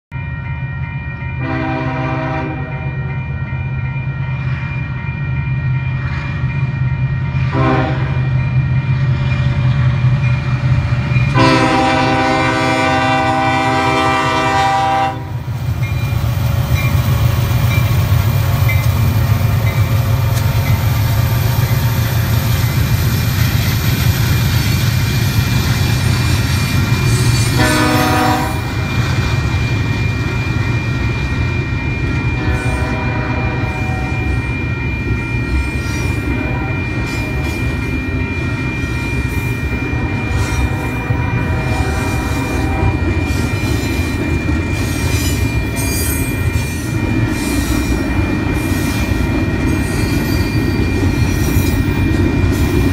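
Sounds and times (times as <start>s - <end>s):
train air horn: 1.4s - 3.0s, 7.5s - 8.2s, 11.3s - 15.5s, 27.4s - 28.9s, 32.4s - 34.4s, 36.1s - 37.7s, 39.9s - 43.4s
diesel locomotive rumble: 5.8s - 52.9s.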